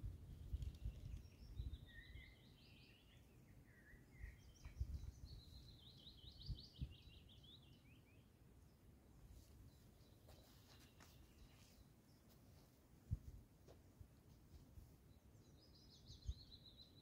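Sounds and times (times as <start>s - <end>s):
songbird singing: 0.0s - 12.7s, 15.0s - 17.0s.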